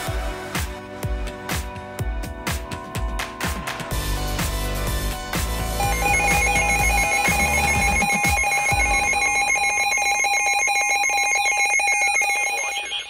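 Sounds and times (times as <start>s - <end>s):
background music with a beat: 0.0s - 13.0s
pulsing electronic alert tone: 5.8s - 13.0s.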